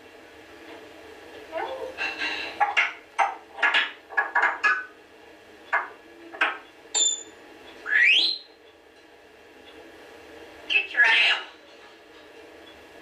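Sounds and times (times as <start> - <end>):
bird whistling: 7.8 - 8.6.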